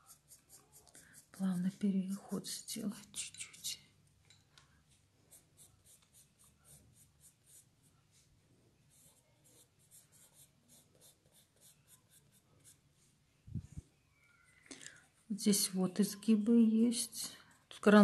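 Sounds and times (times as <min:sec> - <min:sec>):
drawing tool scratching on paper: 0:00.0 - 0:02.7, 0:08.9 - 0:12.8.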